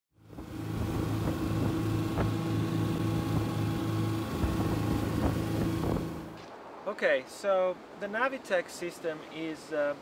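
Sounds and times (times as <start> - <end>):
outboard engines idling: 0.2 - 6.4.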